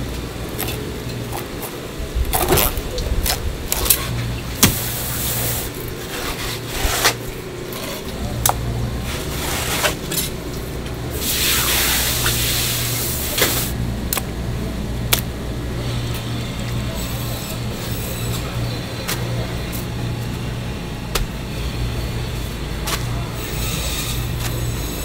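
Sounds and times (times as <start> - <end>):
steady low hum: 0.0 - 25.0
rushing hiss: 11.2 - 13.7.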